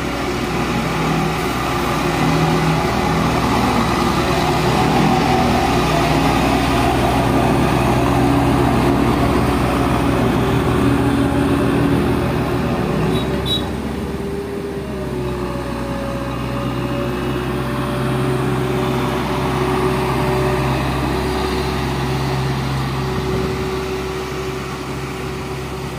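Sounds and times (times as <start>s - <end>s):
road roller diesel engine humming: 0.0s - 25.9s.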